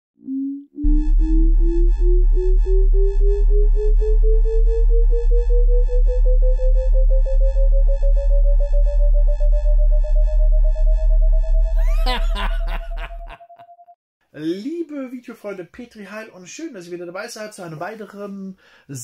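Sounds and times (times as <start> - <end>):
pure tone rising in pitch: 0.2 - 13.9
deep electronic bass pulse: 0.6 - 13.3.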